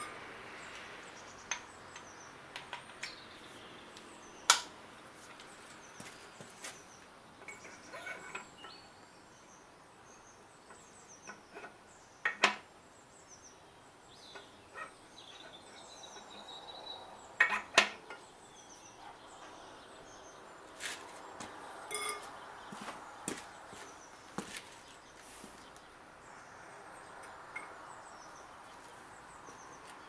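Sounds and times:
faint birds chirping: 0.0s - 30.0s
metallic clinks and knocks: 21.9s - 22.3s.

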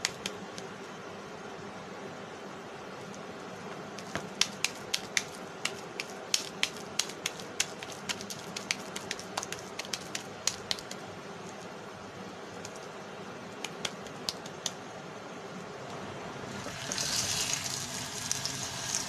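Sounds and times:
hands patting meat patty: 0.0s - 0.7s, 3.7s - 11.1s, 12.6s - 12.9s, 13.6s - 14.8s
steady background hiss: 0.0s - 19.0s.

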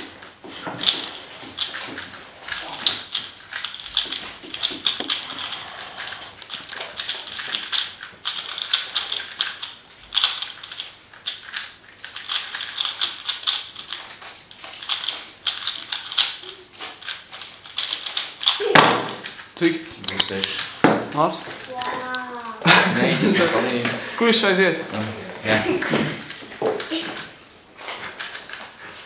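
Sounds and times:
plastic puzzle cube clicking: 6.4s - 19.5s.

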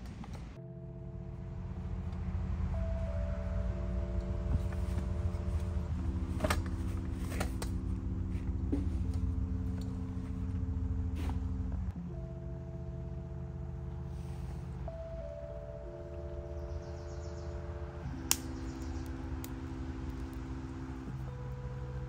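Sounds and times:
sustained chords music: 0.0s - 22.0s
sharp clicks: 18.2s - 19.6s.

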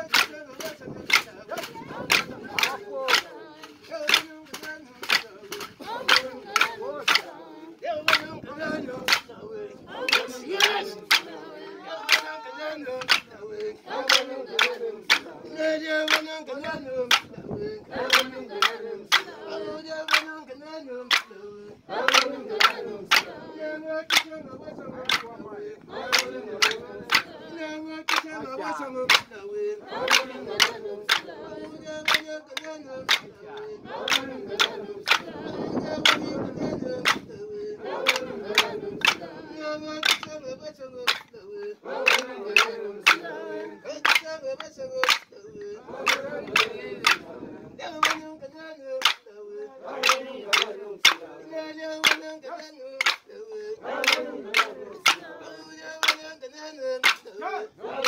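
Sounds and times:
sharp hand claps: 0.0s - 7.3s, 8.1s - 9.3s, 9.9s - 11.4s, 12.0s - 16.4s, 17.0s - 17.4s, 18.0s - 20.4s, 21.0s - 21.3s, 22.0s - 24.4s, 25.0s - 25.3s, 26.0s - 27.4s, 28.1s - 29.3s, 30.0s - 37.3s, 38.0s - 40.4s, 41.0s - 41.4s, 42.0s - 45.3s, 46.0s - 47.3s, 48.0s - 48.3s, 49.0s - 49.3s, 50.0s - 53.3s, 54.0s - 56.4s, 57.0s - 57.3s
group singing together: 0.0s - 58.0s.

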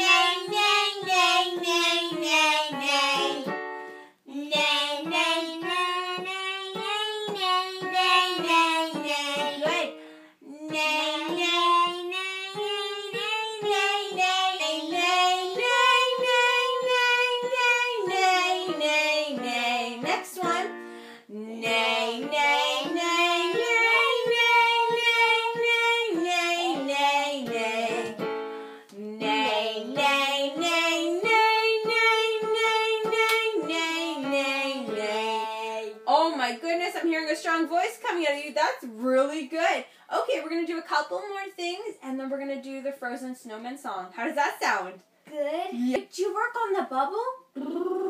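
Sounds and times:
boy singing scales: 0.0s - 3.6s, 4.2s - 36.1s
piano accompaniment: 0.0s - 10.1s, 10.8s - 36.1s.

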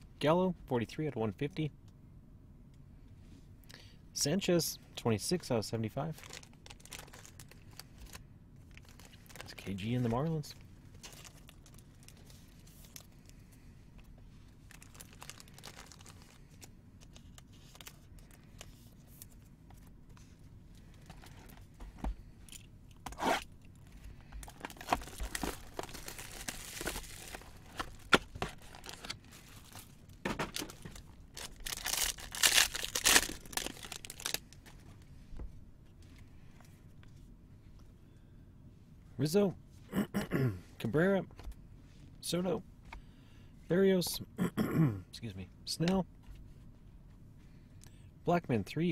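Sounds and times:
shrink wrap crinkling and tearing: 6.0s - 10.3s, 10.9s - 13.2s, 14.6s - 19.4s, 24.4s - 34.8s.

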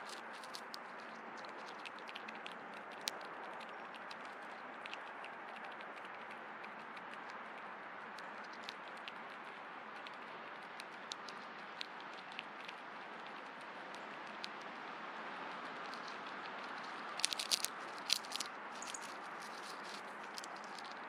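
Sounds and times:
small irregular clicks: 0.0s - 21.0s.

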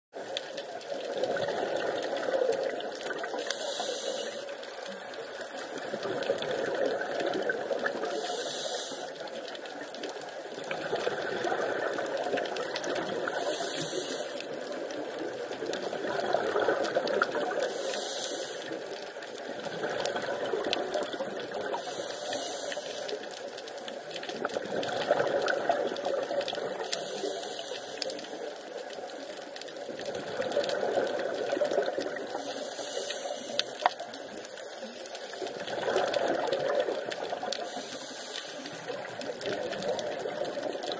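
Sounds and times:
scuba regulator breathing underwater: 1.5s - 4.8s, 8.0s - 9.5s, 13.2s - 14.8s, 16.5s - 18.9s, 21.6s - 23.2s, 26.8s - 28.4s, 31.1s - 33.8s, 34.6s - 39.0s.

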